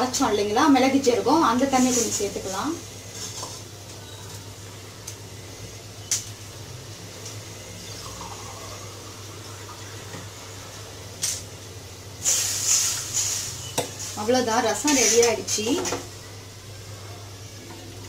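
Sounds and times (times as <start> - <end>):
gas burners hissing: 0.0 - 18.0
pots simmering: 0.0 - 18.0.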